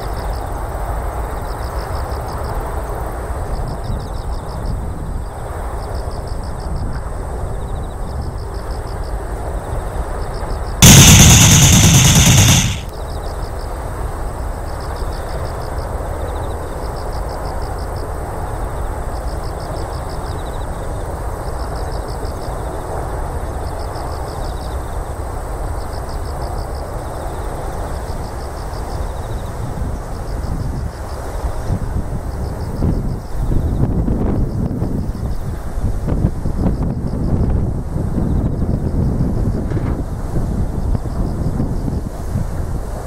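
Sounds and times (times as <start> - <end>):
wind: 0.0 - 4.2, 28.5 - 43.0
loud harsh blast: 10.8 - 12.9.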